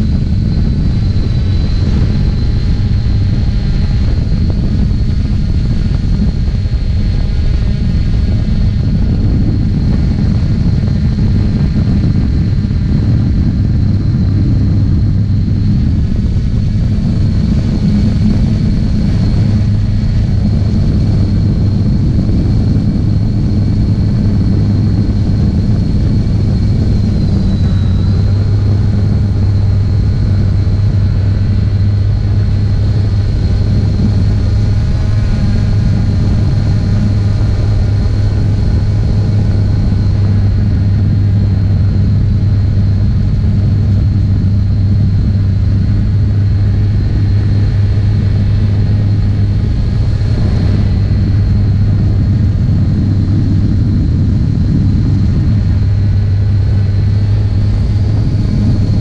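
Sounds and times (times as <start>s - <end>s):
drone motors and propellers humming: 0.0s - 59.0s.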